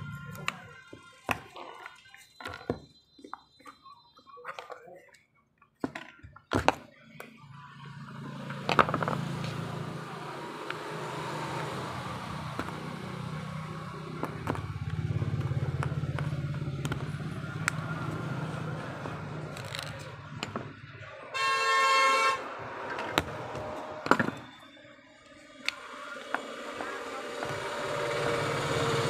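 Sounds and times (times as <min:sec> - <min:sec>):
vehicle engine running: 0:07.5 - 0:21.0, 0:25.3 - 0:29.0
plastic parts clicking: 0:19.5 - 0:20.7.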